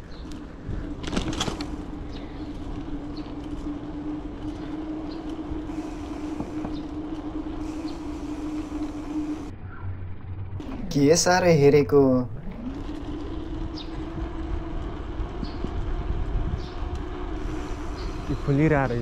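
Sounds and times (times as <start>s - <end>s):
bicycle rolling on tiles: 0.0s - 9.5s, 12.3s - 19.0s
steady hum: 0.0s - 19.0s
wind noise: 12.5s - 19.0s.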